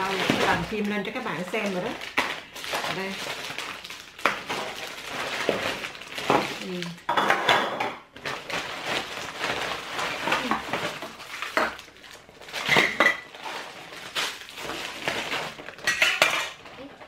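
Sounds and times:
plastic bag rustling: 0.0s - 17.0s
kitchen utensils clattering: 4.4s - 8.0s, 12.5s - 13.8s, 14.7s - 17.0s.

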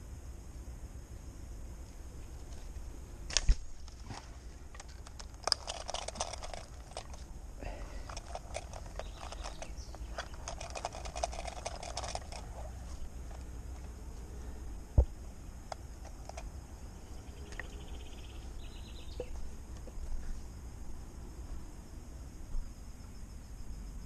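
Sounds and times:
small clicks and rustles: 1.8s - 14.0s, 15.7s - 16.5s.

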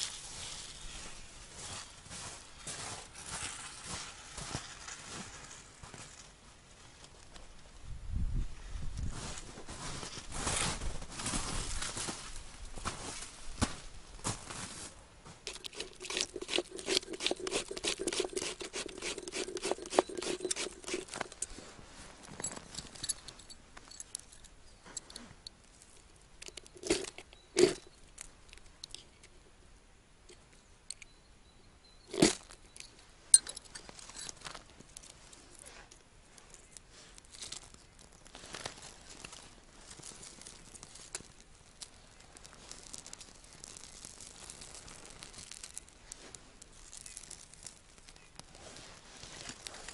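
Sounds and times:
twigs crackling and rustling: 15.4s - 24.6s, 25.6s - 29.3s, 33.8s - 49.9s
twigs snapping: 36.7s - 48.5s.

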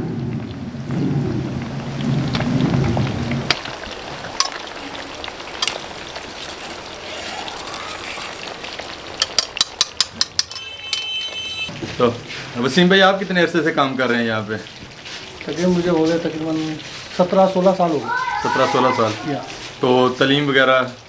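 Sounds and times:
oil sizzling: 0.0s - 21.0s
dough rubbing through ladle: 5.6s - 8.8s.

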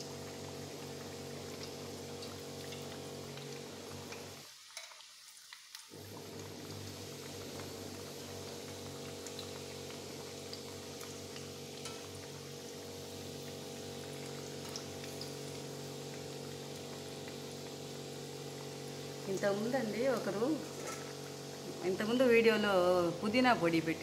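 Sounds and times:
deep-frying sizzle: 0.0s - 24.0s.

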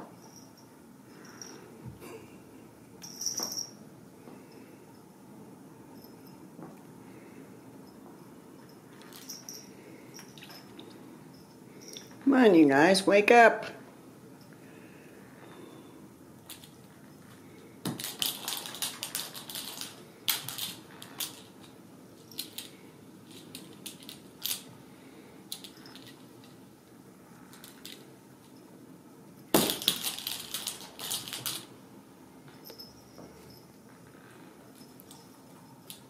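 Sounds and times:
crinkly cat toy crackling: 17.9s - 21.7s, 29.7s - 31.7s.

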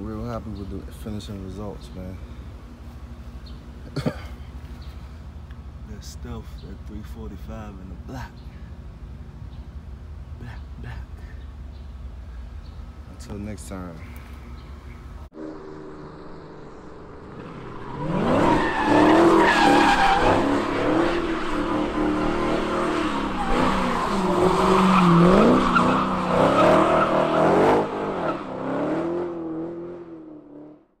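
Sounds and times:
car engine revving: 15.3s - 30.8s
tyres squealing: 17.8s - 28.4s.

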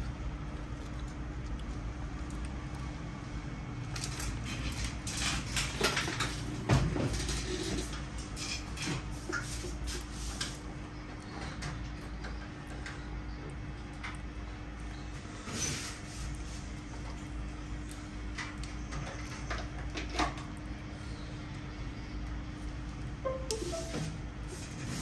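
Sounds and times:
small clicks taps and scrapes: 16.3s - 20.6s.

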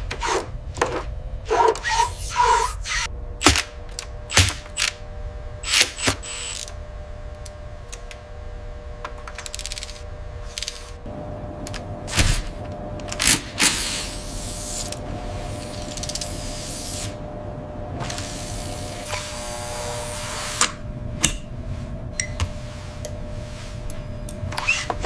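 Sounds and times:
faint steady hum: 0.0s - 25.0s.

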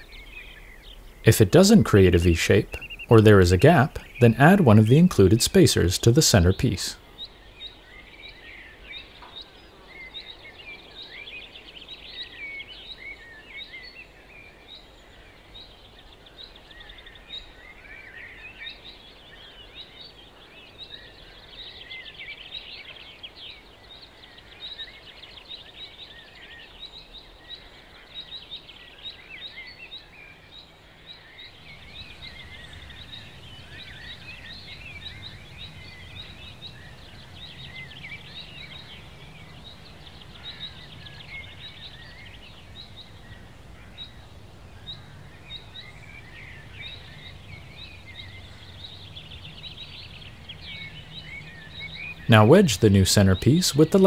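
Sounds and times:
small birds chirping: 0.0s - 54.0s
low steady hum: 31.4s - 54.0s.

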